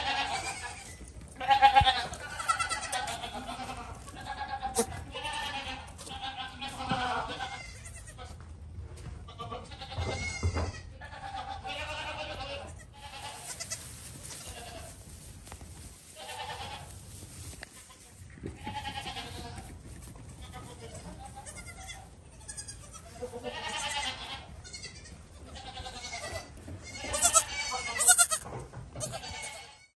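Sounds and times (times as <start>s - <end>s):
goat kids bleating: 0.0s - 8.4s, 9.3s - 15.0s, 16.1s - 17.0s, 17.6s - 29.9s.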